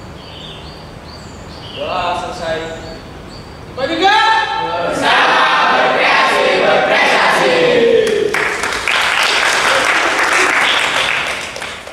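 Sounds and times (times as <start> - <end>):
young people shouting a chant: 3.9 - 8.3
clapping and applause: 8.0 - 11.9.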